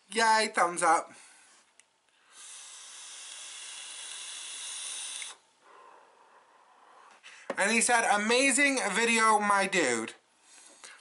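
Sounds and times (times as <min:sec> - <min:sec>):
hiss of air through vape: 0:02.2 - 0:06.0
soft breath out: 0:05.6 - 0:07.5.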